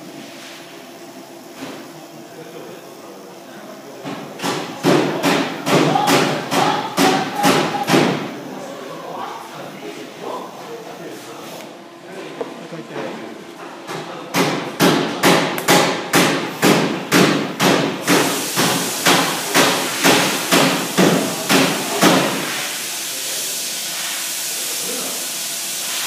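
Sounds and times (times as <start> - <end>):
welding arc hissing: 18.0 - 26.0.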